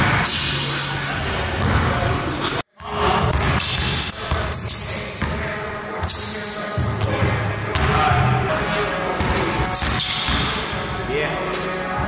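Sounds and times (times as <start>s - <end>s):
basketballs bouncing on wooden floor: 1.6s - 2.1s, 6.8s - 8.5s, 9.2s - 10.9s.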